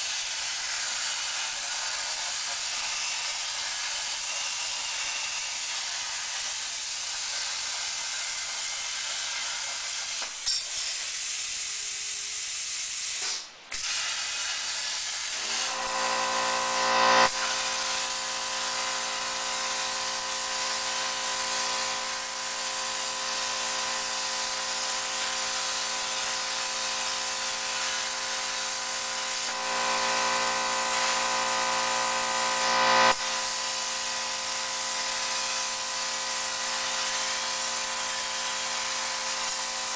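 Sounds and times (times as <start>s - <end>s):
plasma arc hissing: 0.0s - 39.9s
machine whine: 15.3s - 39.9s.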